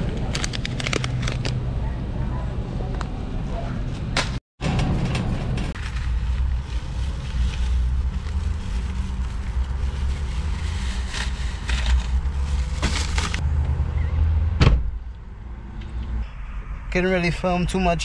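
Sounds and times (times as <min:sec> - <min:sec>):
plastic bags rustling: 0:00.3 - 0:01.5, 0:05.8 - 0:13.4
low rumble: 0:04.6 - 0:18.0
sharp thump: 0:14.6 - 0:15.0.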